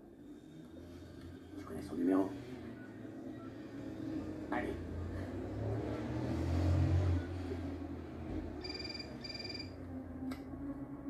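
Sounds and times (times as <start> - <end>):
phone ringing electronic trills: 8.6 - 9.8.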